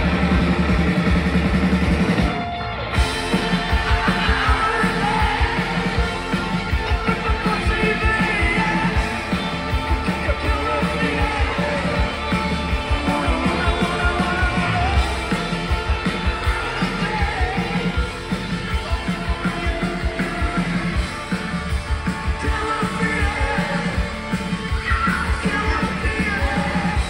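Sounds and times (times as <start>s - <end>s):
driving drum beat: 0.0s - 27.0s
live rock band with vocals: 0.0s - 27.0s.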